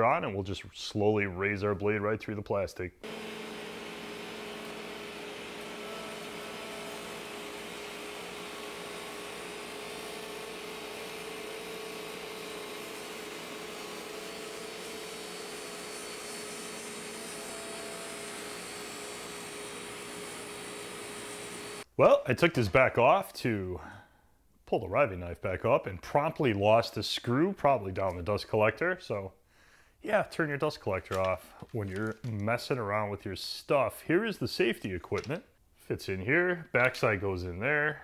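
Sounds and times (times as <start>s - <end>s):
dust collector running: 3.0s - 21.9s
saw blade cutting plastic: 3.0s - 21.9s
table saw motor whining: 3.0s - 21.9s.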